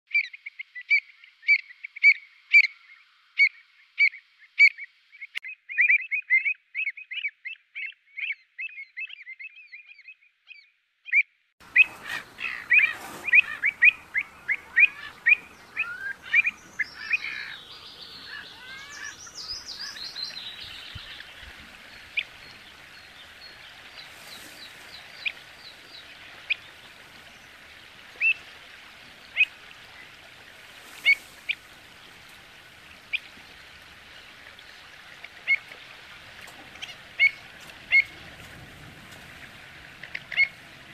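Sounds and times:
steady outdoor hiss: 0:00.1 - 0:05.4, 0:11.6 - 0:40.9
birds calling sharply: 0:11.1 - 0:26.8.

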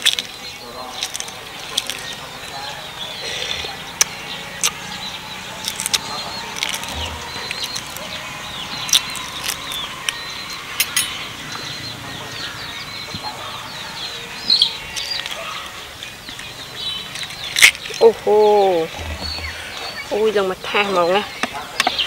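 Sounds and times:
birds chirping: 0:00.0 - 0:22.0
eggshell cracking while peeled: 0:00.9 - 0:02.2, 0:05.6 - 0:08.1, 0:08.8 - 0:11.0, 0:17.1 - 0:18.0.

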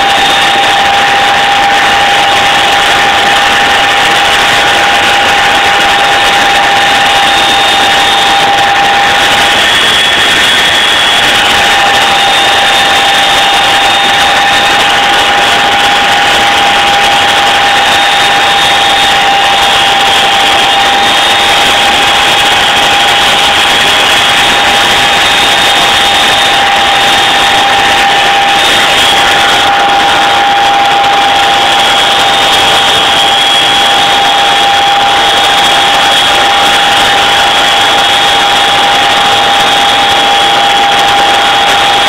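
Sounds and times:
helicopter cabin noise: 0:00.0 - 0:42.0
high whine: 0:00.0 - 0:42.0.

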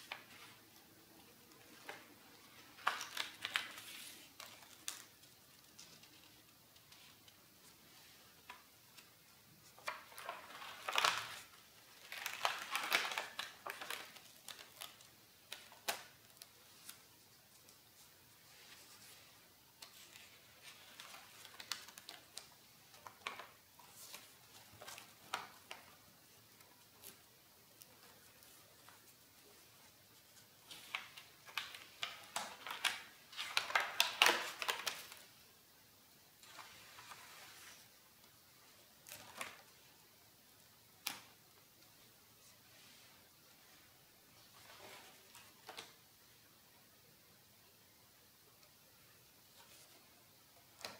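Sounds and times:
stiff paper page rustling: 0:01.5 - 0:17.8, 0:18.5 - 0:29.2, 0:30.2 - 0:35.3.

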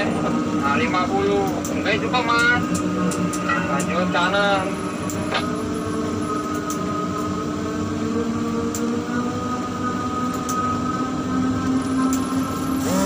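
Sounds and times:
crane machinery hum: 0:00.0 - 0:13.0
held whining tones: 0:00.0 - 0:13.0.

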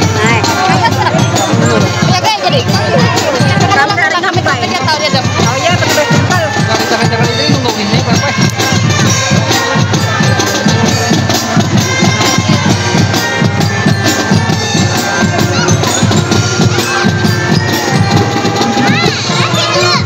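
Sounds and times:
brass holding notes: 0:00.0 - 0:20.0
marching drums beat: 0:00.0 - 0:20.0.

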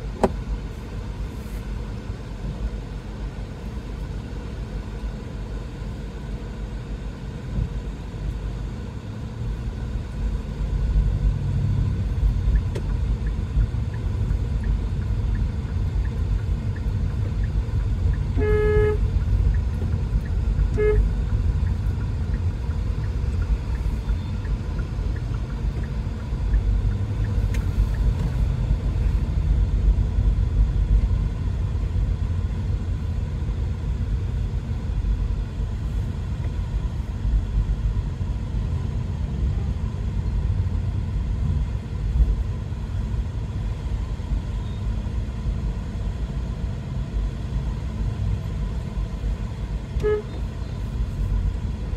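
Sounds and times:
road and engine rumble in car: 0:00.0 - 0:51.9
car horn: 0:18.3 - 0:19.2, 0:20.7 - 0:21.2, 0:50.0 - 0:50.5.

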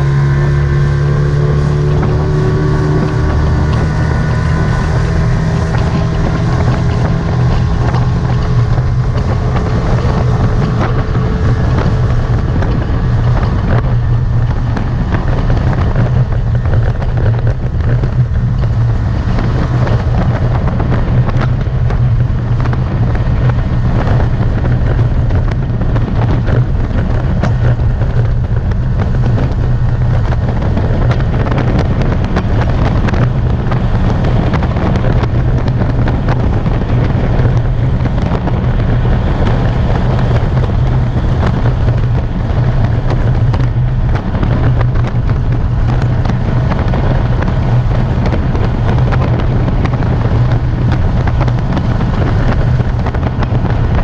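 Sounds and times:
outboard motor running: 0:00.0 - 0:54.0
water rushing along hull: 0:00.0 - 0:54.0
wind buffeting microphone: 0:00.0 - 0:54.0.

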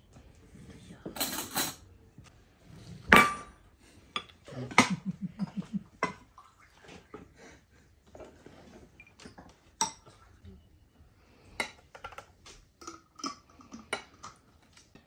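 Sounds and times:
tableware clinking: 0:01.1 - 0:01.8, 0:03.0 - 0:03.6.

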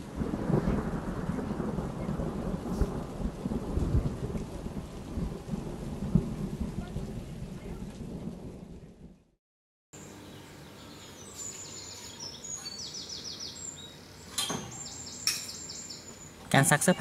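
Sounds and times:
rain: 0:00.0 - 0:09.4
rolling thunder rumble: 0:00.0 - 0:09.4.

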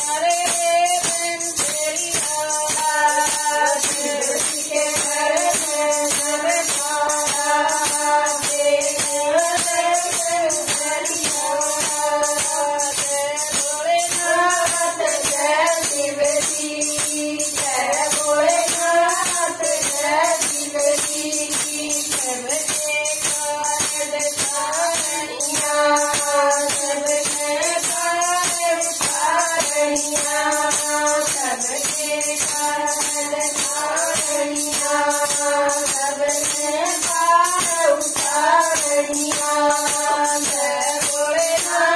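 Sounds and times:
steady percussion beat: 0:00.0 - 0:41.9
women singing devotional song: 0:00.0 - 0:41.9.

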